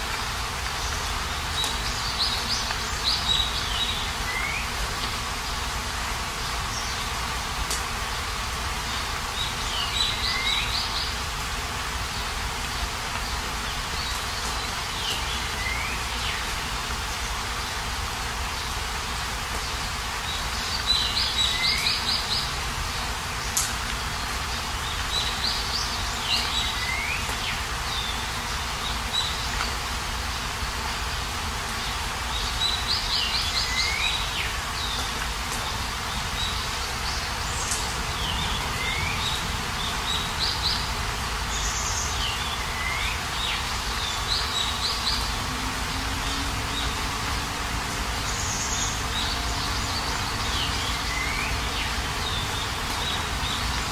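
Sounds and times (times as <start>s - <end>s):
rain hiss: 0.0s - 53.9s
small birds chirping: 0.0s - 53.9s.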